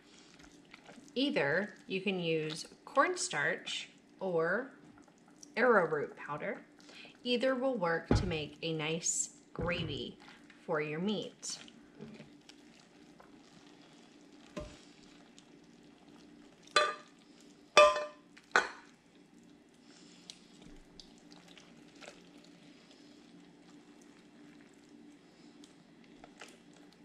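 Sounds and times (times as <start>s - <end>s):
metal tongs clinking on ceramic: 16.8s - 17.0s.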